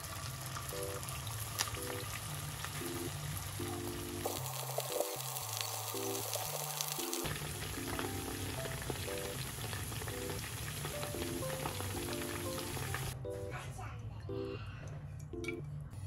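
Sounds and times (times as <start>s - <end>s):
meat deep-frying in oil: 0.0s - 13.2s
background music: 2.8s - 13.7s.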